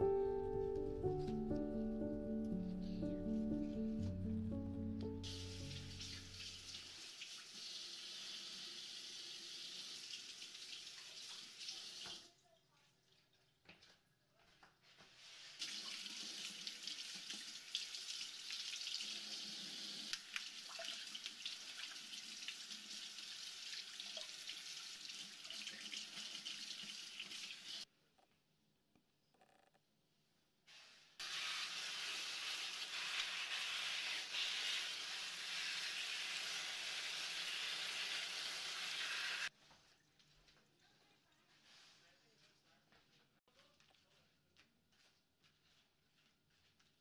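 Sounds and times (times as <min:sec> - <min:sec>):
faucet water splashing into sink: 0:05.3 - 0:12.3, 0:15.6 - 0:27.8.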